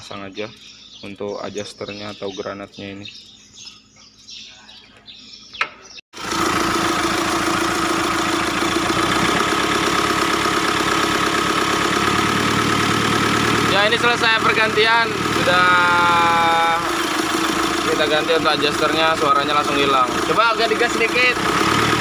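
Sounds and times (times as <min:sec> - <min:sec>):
diesel engine idling: 0:06.2 - 0:22.0.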